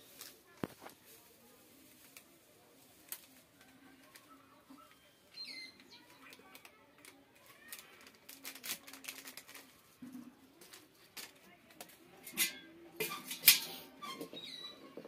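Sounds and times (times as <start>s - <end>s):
plastic sachet crinkling: 0.0s - 5.0s, 5.7s - 10.0s.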